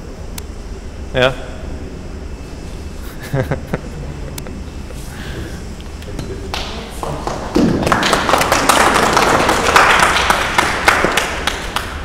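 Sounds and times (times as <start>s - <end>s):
small group clapping: 6.4s - 12.0s.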